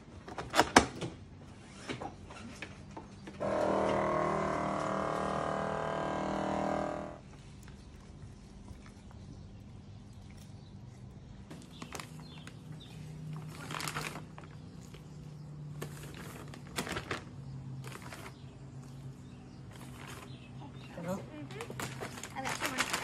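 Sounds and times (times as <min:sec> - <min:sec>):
steady low hum: 0:02.4 - 0:23.0
plastic bags crinkling: 0:11.5 - 0:18.6, 0:19.7 - 0:20.4, 0:21.4 - 0:23.0.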